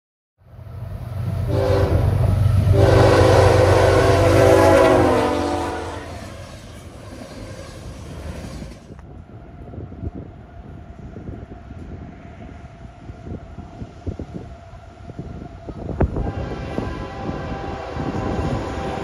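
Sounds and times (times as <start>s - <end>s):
low train rumble: 0.4s - 19.0s
locomotive air horn: 1.5s - 6.6s, 16.0s - 19.0s.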